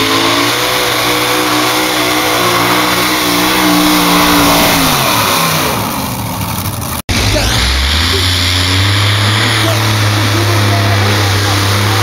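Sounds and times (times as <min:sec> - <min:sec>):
pulling tractor engine drone: 0:00.0 - 0:12.0.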